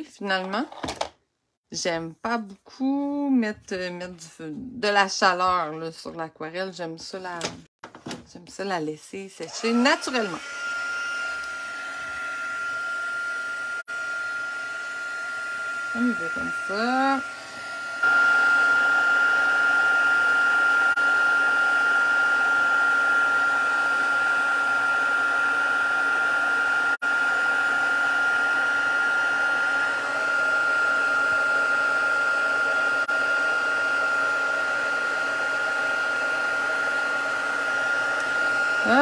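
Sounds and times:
heat tool blowing with whine: 9.4 - 39.0.

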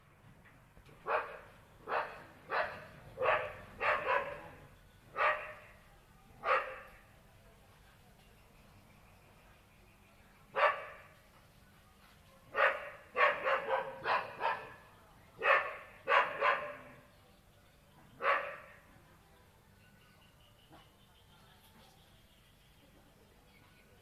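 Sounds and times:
dog barking: 1.0 - 5.8, 6.4 - 7.1, 10.5 - 11.2, 12.5 - 17.1, 18.2 - 18.9.

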